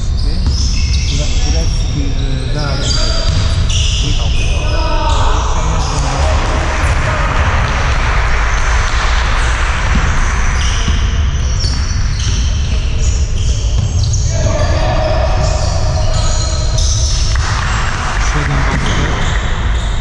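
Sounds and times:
basketball bouncing on court: 0:00.4 - 0:01.5, 0:02.8 - 0:04.0, 0:06.9 - 0:20.0.

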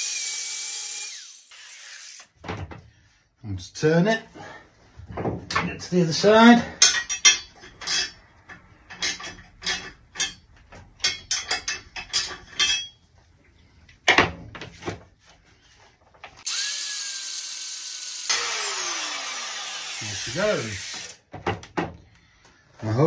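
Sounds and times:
angle grinder cutting steel: 0:00.0 - 0:02.3, 0:16.4 - 0:21.2
tool handling clicks and knocks: 0:06.8 - 0:13.0.

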